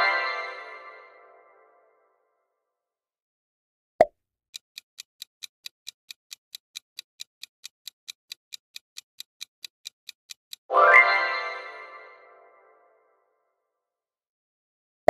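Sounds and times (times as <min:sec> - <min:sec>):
clock ticking: 0:04.5 - 0:10.7.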